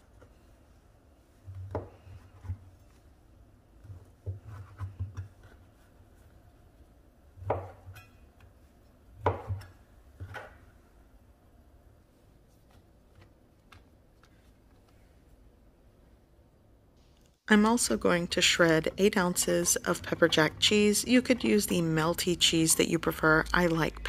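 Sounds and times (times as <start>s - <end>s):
knife chopping on wooden board: 7.4s - 8.0s, 9.2s - 10.5s.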